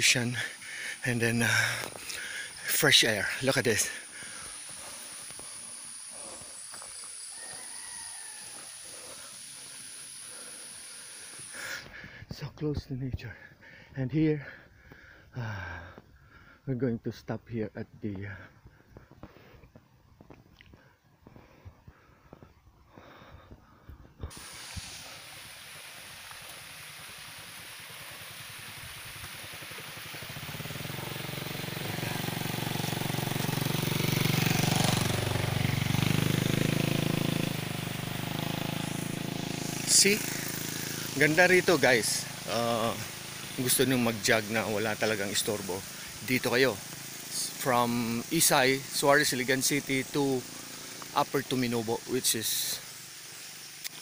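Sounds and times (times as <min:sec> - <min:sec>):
insect chorus: 0:00.0 - 0:19.2, 0:21.8 - 0:54.0
soft outdoor hiss: 0:00.0 - 0:54.0
vehicle engine approaching: 0:26.0 - 0:53.8.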